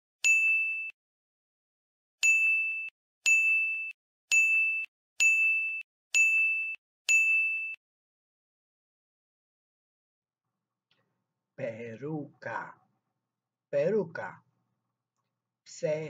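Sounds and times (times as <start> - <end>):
bright bell ding: 2.2 - 7.8.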